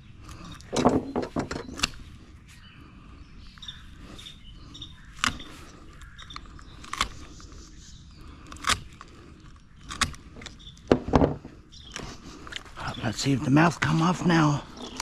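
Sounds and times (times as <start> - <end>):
shears crunching through bone: 5.0 - 7.5, 8.2 - 10.9.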